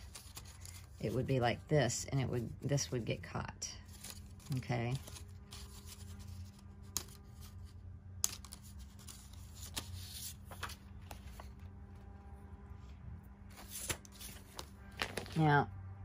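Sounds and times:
steady low hum: 0:00.0 - 0:14.9
card rustling and flexing: 0:13.4 - 0:15.5.

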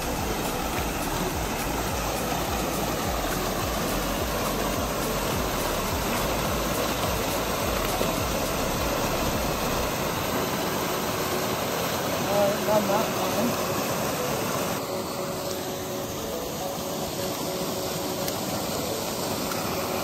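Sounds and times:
water splashing into pool: 0:00.0 - 0:14.2
water rushing from culvert pipes: 0:00.0 - 0:20.0.

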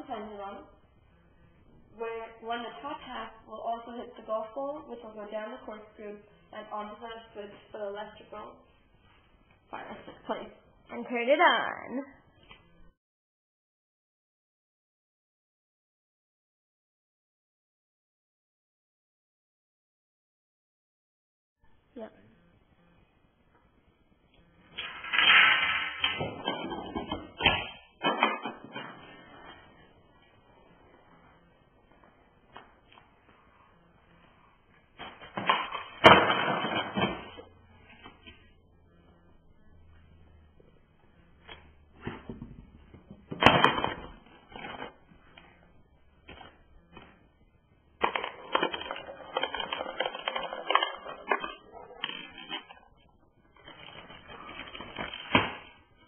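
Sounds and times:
dominoes and books toppling: 0:24.8 - 0:26.8, 0:48.0 - 0:52.7
objects knocking and rolling: 0:24.8 - 0:29.4, 0:35.0 - 0:37.6, 0:48.0 - 0:52.9.

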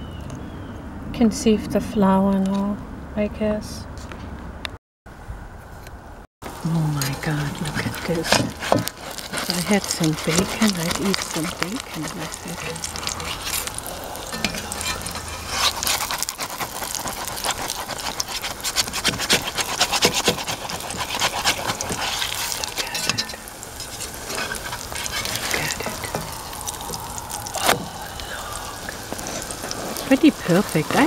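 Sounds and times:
batter sizzling in hot oil: 0:06.4 - 0:31.0.

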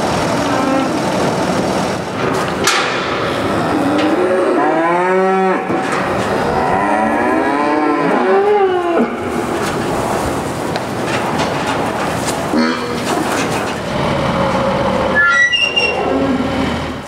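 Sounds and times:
cows mooing: 0:00.3 - 0:01.2, 0:03.1 - 0:10.0, 0:12.5 - 0:17.0.

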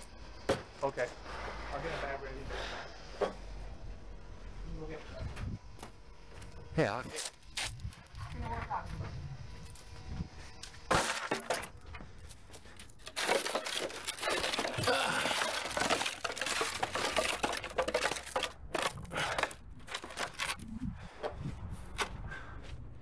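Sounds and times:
paper sack crinkling and tearing: 0:13.0 - 0:20.6.

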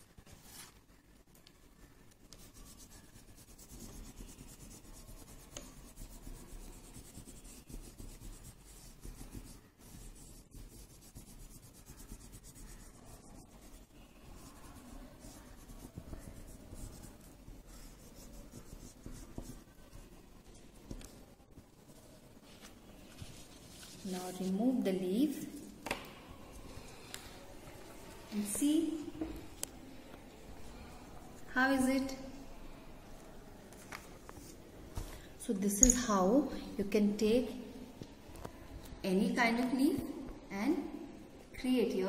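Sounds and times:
crayon rubbing on paper: 0:02.3 - 0:20.1.

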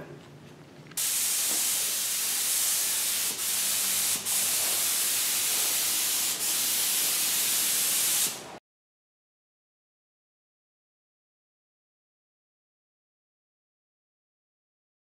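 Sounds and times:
spray gun hissing: 0:01.0 - 0:08.6.

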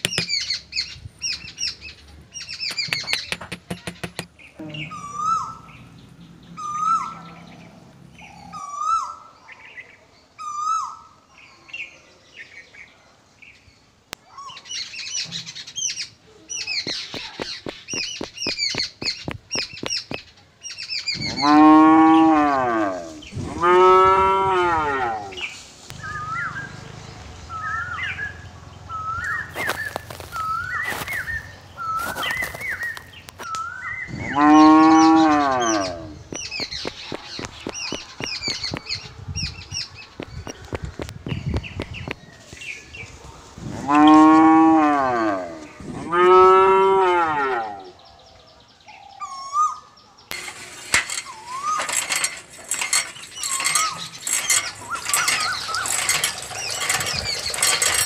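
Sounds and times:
cows mooing: 0:21.2 - 0:25.5, 0:34.1 - 0:36.2, 0:43.8 - 0:47.9.

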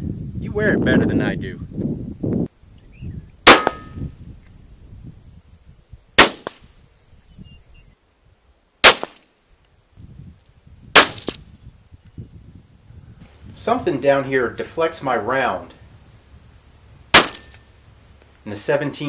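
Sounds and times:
rifle shots with echo: 0:03.5 - 0:04.0, 0:06.2 - 0:06.6, 0:08.8 - 0:09.2, 0:17.1 - 0:17.6.

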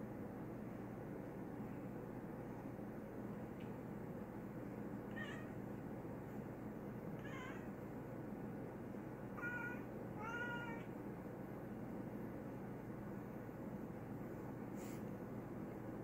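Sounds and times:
cat meowing: 0:05.1 - 0:05.6, 0:07.2 - 0:07.7, 0:09.4 - 0:10.9.

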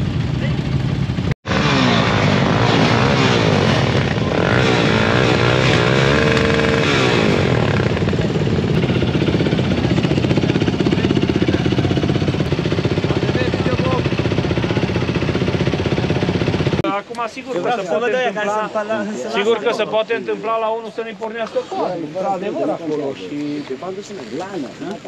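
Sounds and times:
quad engines revving and idling: 0:00.0 - 0:18.6.

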